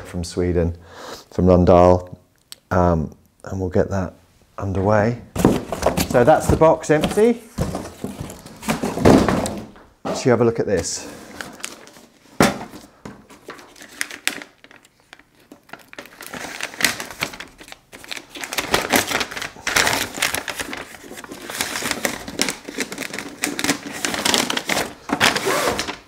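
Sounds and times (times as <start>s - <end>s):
paper crinkling: 11.2s - 26.0s.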